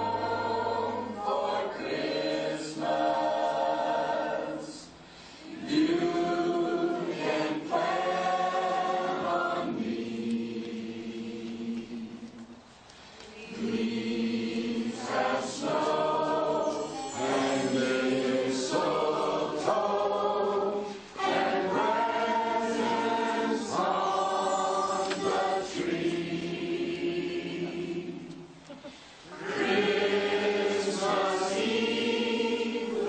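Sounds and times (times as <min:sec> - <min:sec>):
choir singing in harmony: 0:00.0 - 0:12.6, 0:13.3 - 0:28.6, 0:29.2 - 0:33.0.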